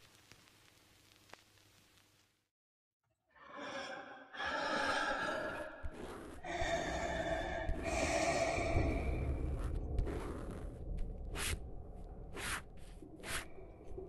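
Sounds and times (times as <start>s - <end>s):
person breathing heavily: 4.4s - 10.7s.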